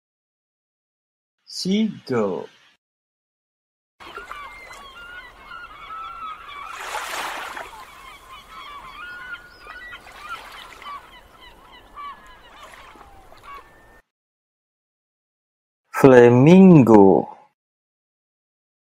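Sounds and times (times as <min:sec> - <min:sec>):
seagulls calling: 0:01.7 - 0:02.8, 0:04.0 - 0:14.0.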